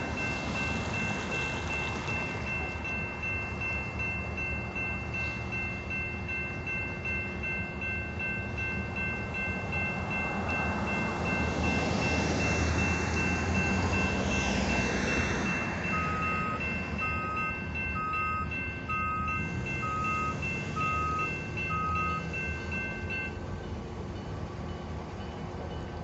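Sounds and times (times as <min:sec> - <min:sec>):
crossing warning bell ringing: 0:00.0 - 0:26.0
diesel locomotive rumble: 0:00.0 - 0:26.0.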